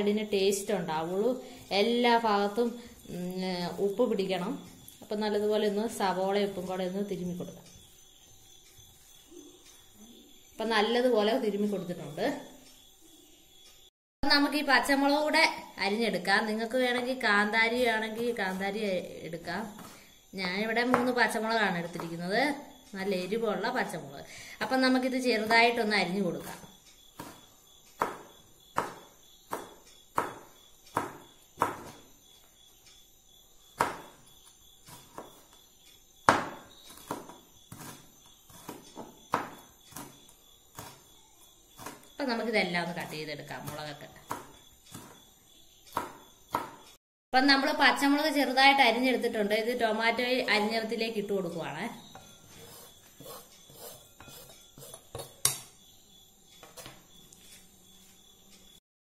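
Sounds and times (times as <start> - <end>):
knife chopping on plastic board: 27.2 - 32.1, 33.8 - 34.2, 34.9 - 35.5, 36.2 - 41.1, 41.8 - 42.1, 43.6 - 45.3, 45.9 - 46.9.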